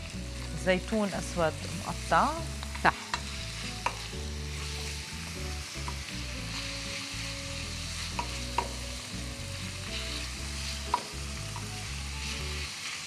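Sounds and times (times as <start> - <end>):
food sizzling in oil: 0.0 - 13.0
utensil clicking against pan: 2.6 - 4.0, 5.8 - 6.1, 8.1 - 8.8, 10.9 - 11.7.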